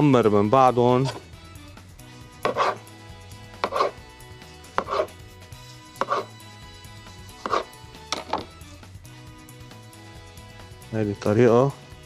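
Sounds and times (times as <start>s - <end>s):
knife slicing tomato on board: 2.4s - 2.8s, 3.6s - 4.0s, 4.6s - 5.2s, 6.0s - 6.4s, 7.4s - 8.5s.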